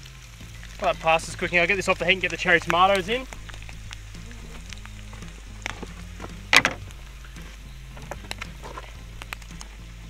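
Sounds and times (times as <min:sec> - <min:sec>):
soft background music: 0:00.0 - 0:10.0.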